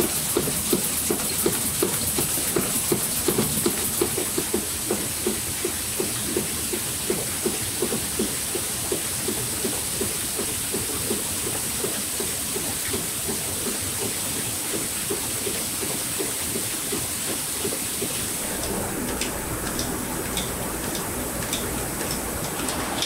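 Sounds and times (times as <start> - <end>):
grain hissing and rattling on screen: 0.0 - 5.1.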